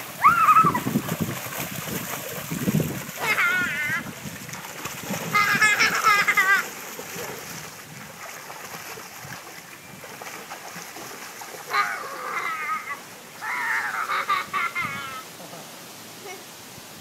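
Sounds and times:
water splashing: 0.0s - 16.9s
rushing churning water: 0.0s - 17.0s
child calling out: 3.2s - 4.1s, 11.7s - 14.2s, 16.2s - 16.5s.

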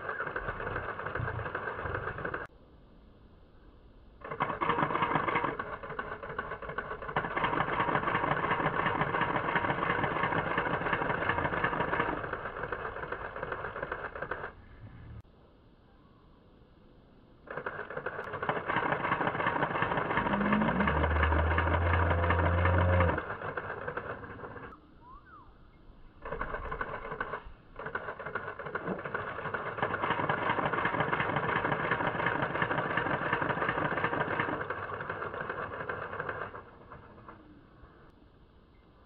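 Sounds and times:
rapid mechanical clatter: 0.0s - 2.5s, 4.2s - 14.6s, 17.4s - 24.8s, 26.2s - 38.1s.

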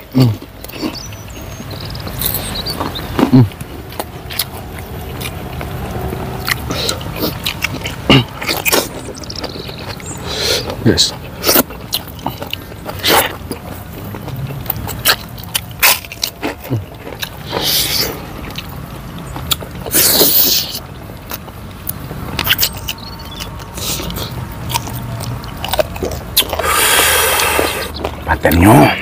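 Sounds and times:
wet chewing and lip smacks: 0.3s - 28.6s
sucking noises: 26.4s - 28.0s.

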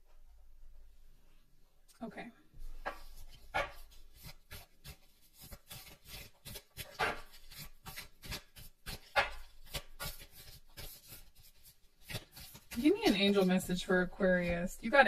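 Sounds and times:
cards being shuffled: 2.9s - 13.8s.

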